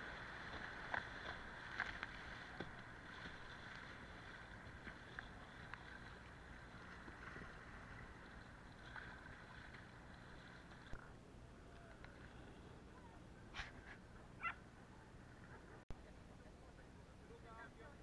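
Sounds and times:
sharp water splashes: 0.0s - 10.9s
water rushing against kayak: 0.0s - 12.7s.

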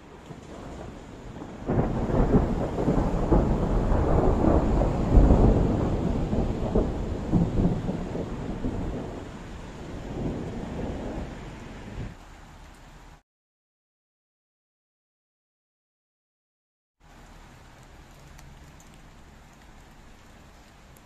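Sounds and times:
rolling thunder: 0.0s - 12.2s.

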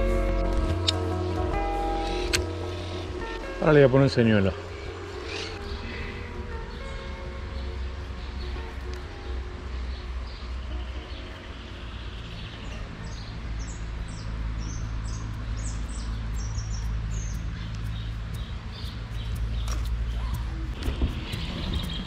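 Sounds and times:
small birds chirping: 2.0s - 9.1s, 9.8s - 22.0s.

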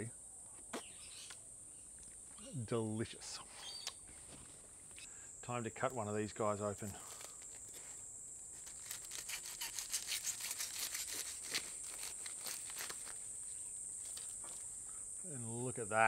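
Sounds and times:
crickets chirring: 0.0s - 16.0s
knife crunching through crust: 8.6s - 13.2s.

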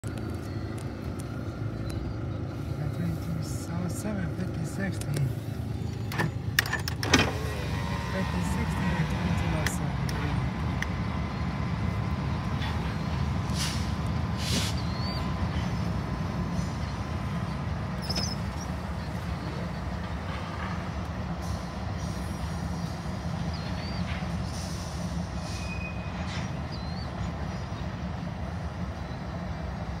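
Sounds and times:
freight train rumbling on rails: 0.0s - 30.0s
train cars clanking: 4.4s - 30.0s
high wheel squeals: 25.4s - 27.0s.

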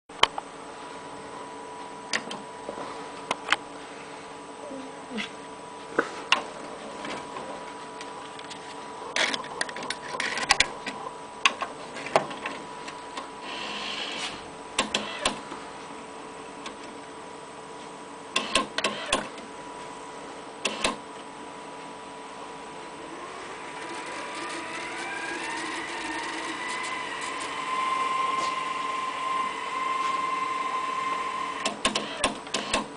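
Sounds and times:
tape motor whine: 13.2s - 15.6s, 18.3s - 19.5s, 20.6s - 21.0s, 22.2s - 32.9s
tape deck clicks and clunks: 14.8s - 15.4s, 18.4s - 19.4s, 20.6s - 21.0s, 31.6s - 32.9s
short whirr: 23.0s - 32.8s.

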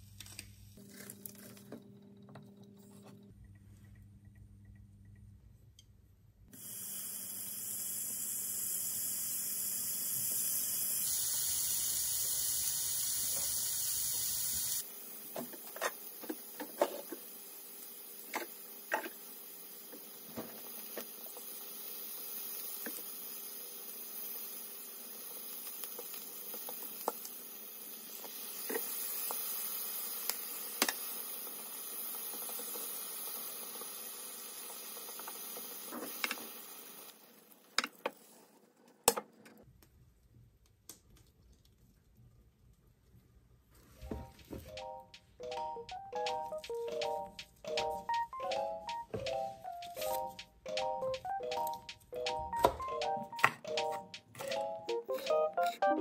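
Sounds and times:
meat sizzling in oil: 6.6s - 37.3s.

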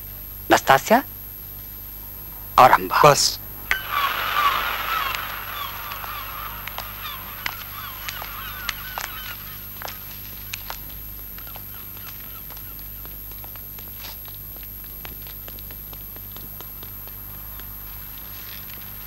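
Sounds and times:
low hum: 1.6s - 11.4s
faint short calls: 2.6s - 13.2s.

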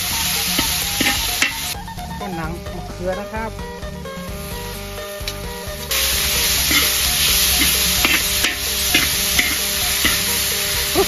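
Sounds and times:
metal spatula scraping a wok: 0.0s - 1.8s, 5.9s - 11.0s
vegetables sizzling in oil: 0.0s - 1.8s, 4.2s - 11.0s.

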